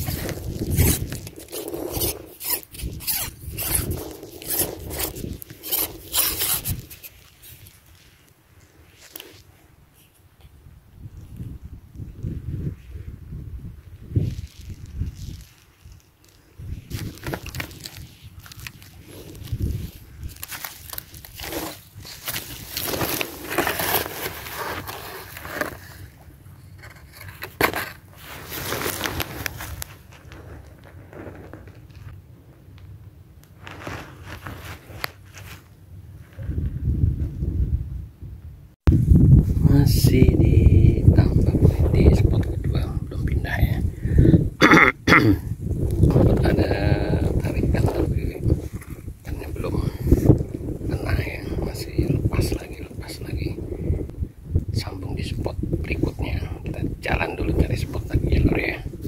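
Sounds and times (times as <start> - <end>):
fishing pole sections scraping: 0.0 - 8.1
rustling in dry grass: 0.0 - 10.3, 13.8 - 32.6, 33.5 - 37.2
plastic bag rustling: 14.2 - 26.2, 27.0 - 32.1, 33.6 - 35.7.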